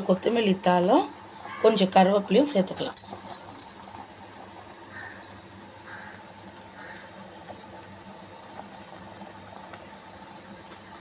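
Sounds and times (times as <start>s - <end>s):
soup boiling in a pot: 4.0s - 11.0s.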